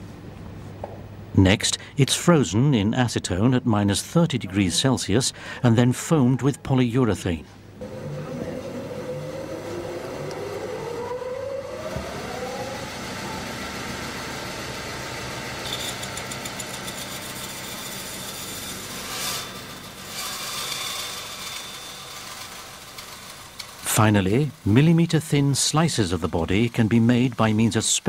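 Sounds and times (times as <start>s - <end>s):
electric saw motor running: 7.8s - 27.7s
harsh hiss: 20.4s - 28.0s.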